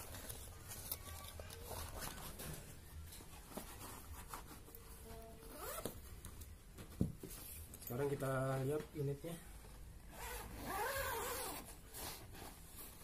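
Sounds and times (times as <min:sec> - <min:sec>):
zipper being pulled open: 0:05.4 - 0:05.9, 0:10.1 - 0:12.6.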